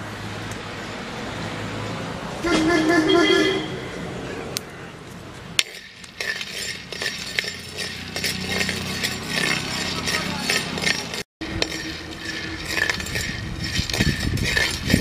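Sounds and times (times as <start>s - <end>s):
metal ladle scraping a clay pot: 5.6s - 15.0s
peanuts rattling in a pot: 5.7s - 15.0s.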